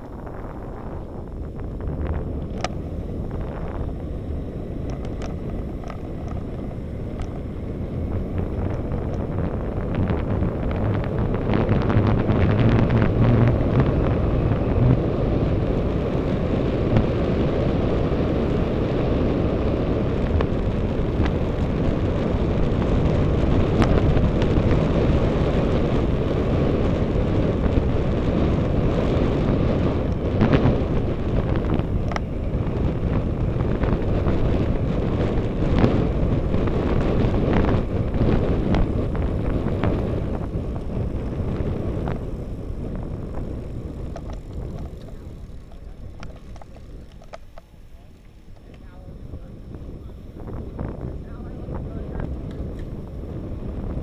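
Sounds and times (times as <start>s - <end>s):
tyre noise on asphalt: 0.0s - 54.0s
wind on microphone: 0.0s - 54.0s
faint clicks: 4.8s - 7.4s.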